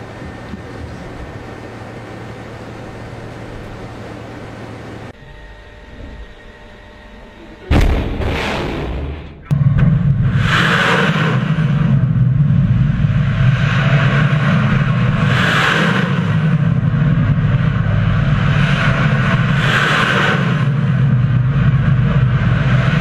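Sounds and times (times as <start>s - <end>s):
rocket roar: 7.6s - 23.0s
loud rocket hiss: 10.3s - 11.8s.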